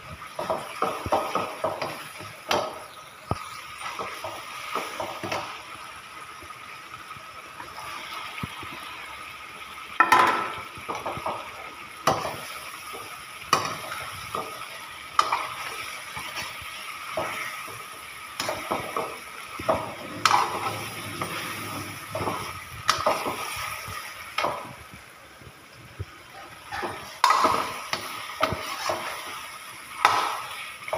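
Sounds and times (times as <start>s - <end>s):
food sizzling in a pan: 0.0s - 30.9s
food clattering into pan: 10.0s - 12.5s, 26.6s - 29.2s
steel ladle scraping a pan: 19.6s - 23.6s, 26.4s - 29.4s.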